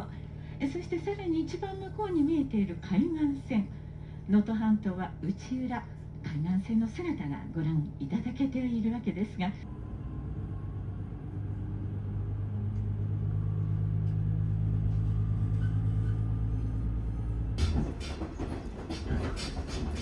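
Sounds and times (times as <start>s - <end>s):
diesel railcar engine humming: 0.0s - 20.0s
rattling and clattering: 17.6s - 20.0s.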